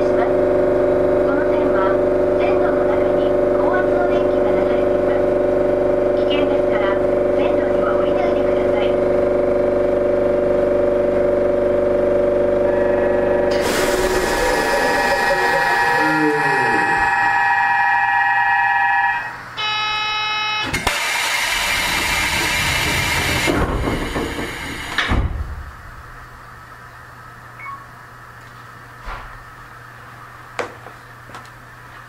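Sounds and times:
train doors hissing shut: 13.5 - 16.3, 20.7 - 25.6
electronic chime tones: 14.7 - 20.7.

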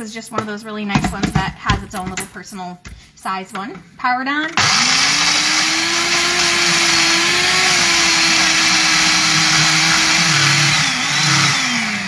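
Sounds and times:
blender whirring: 4.6 - 12.0.

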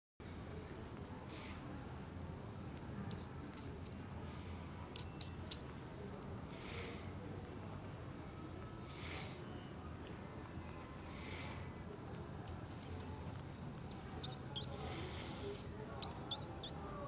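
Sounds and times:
sparrow chirping: 3.1 - 4.0, 5.0 - 5.6, 12.5 - 13.2, 13.9 - 14.7, 16.0 - 16.8.

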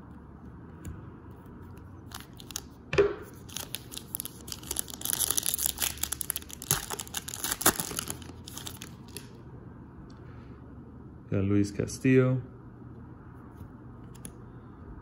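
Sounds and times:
plastic wrapper crinkling and tearing: 2.1 - 9.4.

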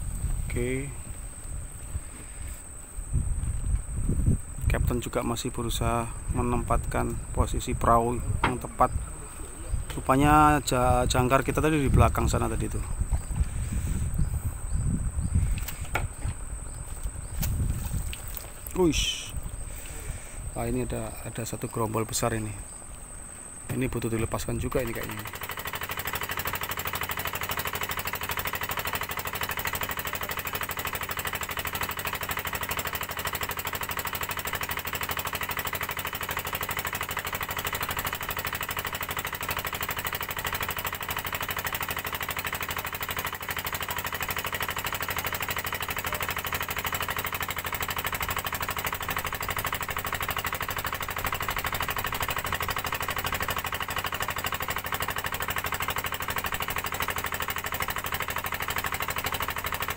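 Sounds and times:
boat engine knocking: 5.7 - 14.5, 23.7 - 59.9.

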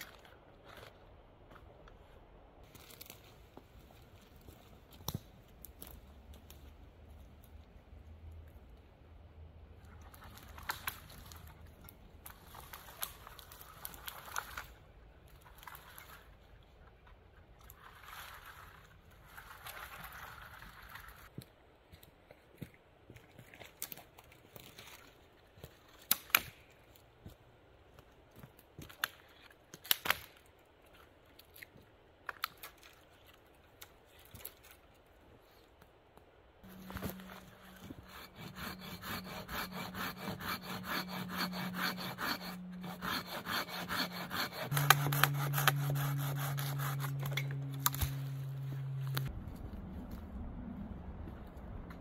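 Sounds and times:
wooden pole dragged rustling: 36.7 - 49.3.

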